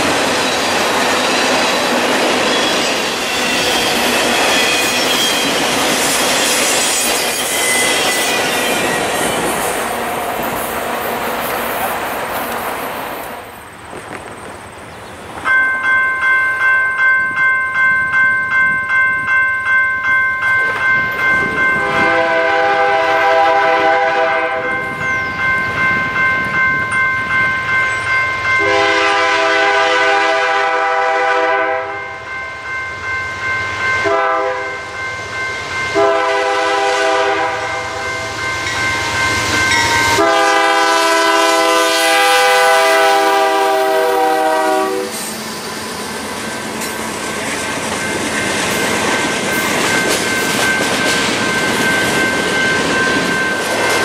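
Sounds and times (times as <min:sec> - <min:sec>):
ringing warning bell: 0:00.5 - 0:09.8, 0:15.5 - 0:23.5, 0:24.5 - 0:29.3, 0:31.9 - 0:41.9, 0:44.6 - 0:54.0
locomotive air horn: 0:21.8 - 0:24.7, 0:28.6 - 0:32.0, 0:34.0 - 0:34.8, 0:36.0 - 0:38.0, 0:40.1 - 0:45.3.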